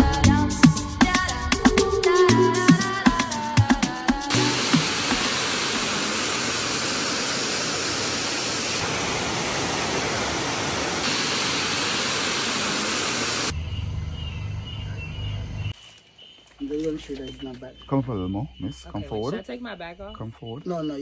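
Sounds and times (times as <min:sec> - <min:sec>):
waterfall rushing hiss: 0:04.3 - 0:13.5.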